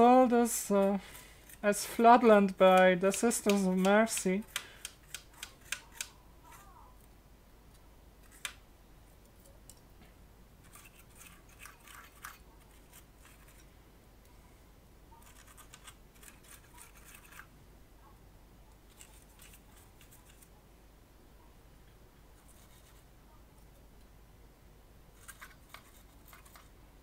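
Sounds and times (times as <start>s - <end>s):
brush scrubbing circuit board: 15.2s - 17.5s, 22.4s - 23.1s, 25.2s - 26.7s.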